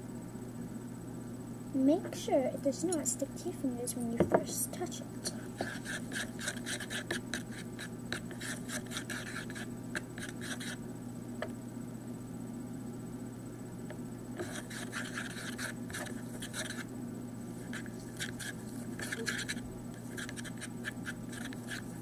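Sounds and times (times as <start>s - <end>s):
steady low hum: 0.0s - 22.0s
tool scraping and stirring slime: 5.2s - 10.8s, 14.4s - 16.9s, 17.6s - 22.0s.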